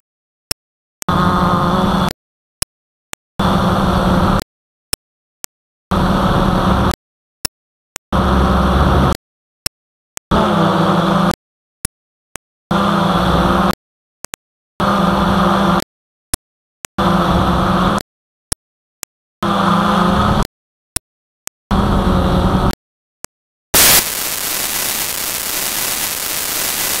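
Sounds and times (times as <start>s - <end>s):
loud static hiss: 23.8s - 27.0s.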